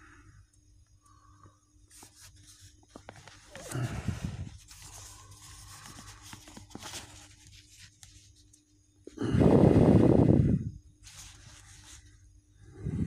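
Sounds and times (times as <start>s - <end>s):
paper pages rustling: 1.9s - 3.9s, 4.5s - 8.7s, 11.0s - 12.1s.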